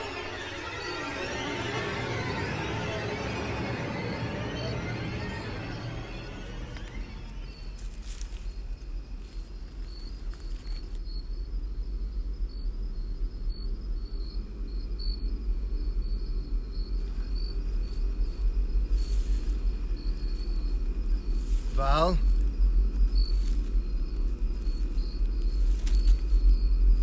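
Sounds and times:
crickets chirping: 0.0 - 27.0
low rumble: 0.0 - 27.0.

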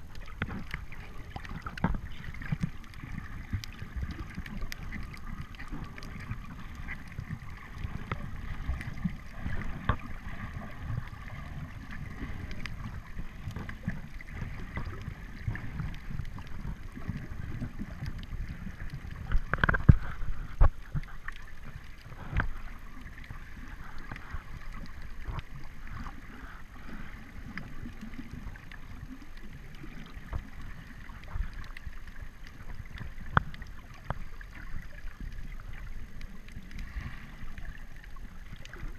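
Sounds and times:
knocks and rushing water: 0.0 - 22.7
faint clicks: 0.0 - 38.9
muffled underwater rumble: 0.0 - 38.9.

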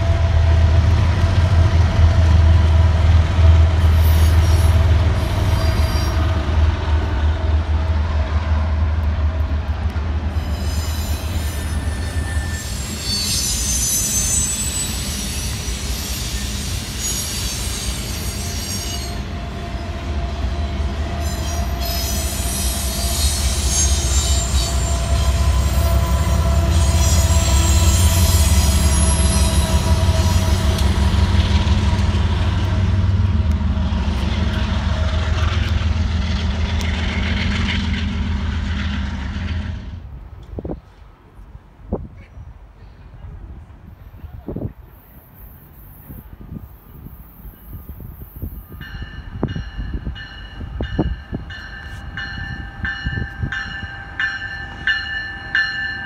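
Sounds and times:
locomotive engines rumbling: 0.0 - 56.0
train wheel squeal: 3.8 - 6.4, 10.3 - 31.8, 44.6 - 56.0.

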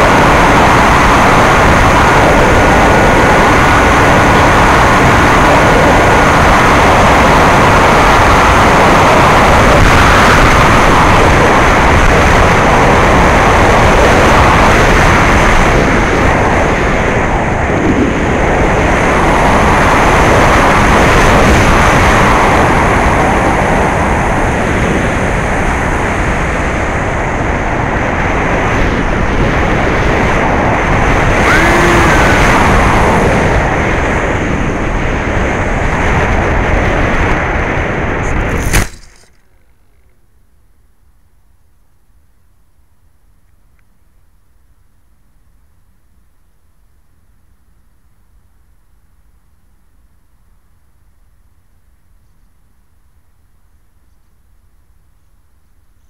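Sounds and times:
rush of airflow: 0.0 - 39.1
electric motor and propeller whine: 0.0 - 40.2.

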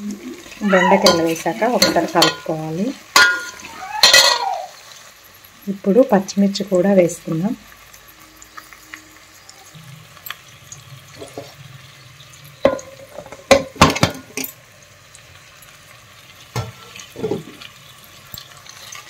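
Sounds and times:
vegetables frying: 0.0 - 19.0
metal spoon clinking on pot: 0.9 - 4.5.

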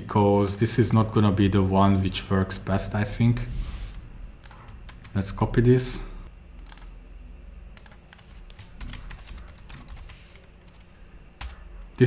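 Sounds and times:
computer keyboard typing: 4.4 - 5.2, 6.6 - 6.9, 7.8 - 12.0.

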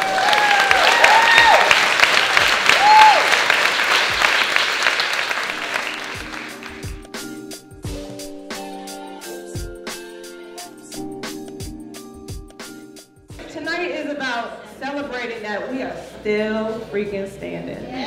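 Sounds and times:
whoops and cheers: 0.0 - 1.8, 2.6 - 3.4
audience applauding: 0.0 - 7.0
music with held notes: 5.4 - 13.5.

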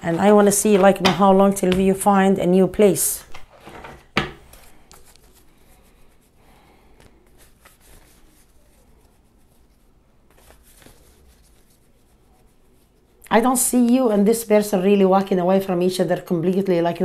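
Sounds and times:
cards being shuffled: 0.0 - 2.0, 4.4 - 5.5, 7.0 - 11.9.

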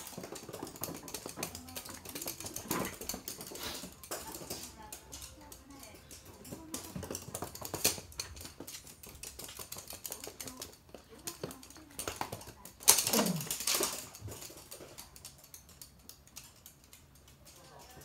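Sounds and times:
dog claws clicking on hard floor: 0.0 - 18.0.

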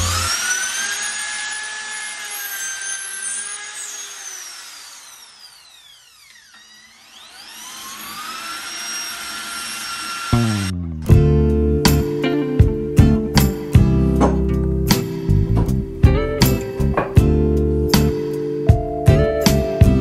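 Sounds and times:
small electric motor whining: 0.0 - 10.8.

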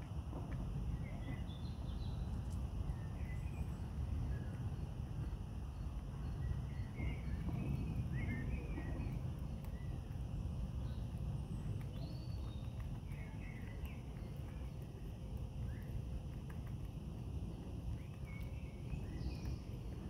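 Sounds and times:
steady low rumble: 0.0 - 20.0
faint clicks: 10.8 - 20.0.

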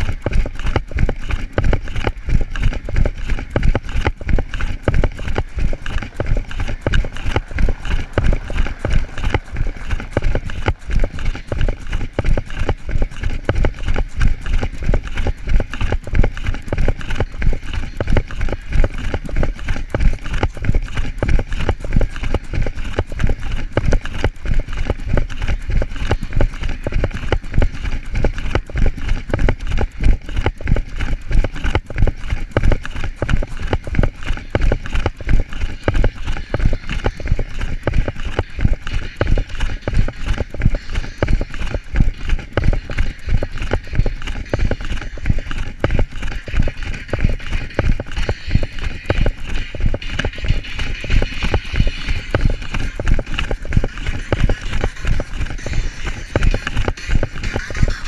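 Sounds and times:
running footsteps on pavement: 0.0 - 58.0.

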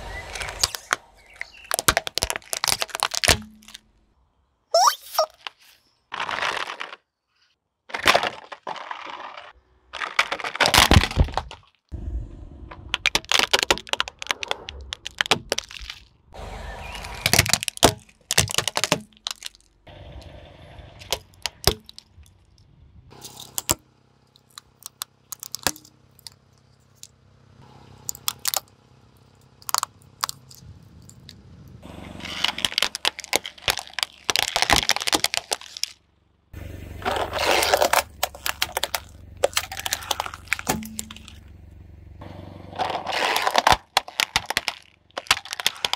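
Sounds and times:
plastic toys crunching under tyre: 0.0 - 4.0, 4.8 - 12.0, 12.7 - 19.9, 21.0 - 27.2, 28.0 - 36.1, 36.8 - 41.8, 42.6 - 45.9.

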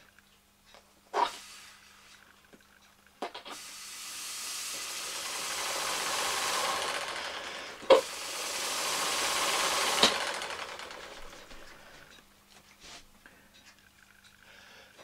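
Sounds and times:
air hissing through pneumatic engine: 1.2 - 2.2, 3.5 - 10.3.

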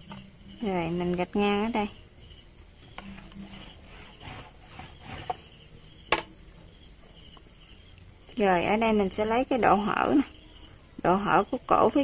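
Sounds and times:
chalk rubbing over fabric: 3.1 - 5.6.

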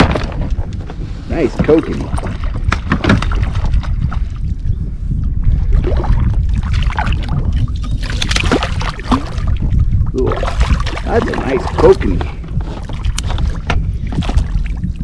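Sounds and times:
steady low rumble: 0.0 - 15.0
water slapping against kayak hull: 1.5 - 4.4, 5.8 - 15.0
fish thrashing and splashing: 6.6 - 15.0.

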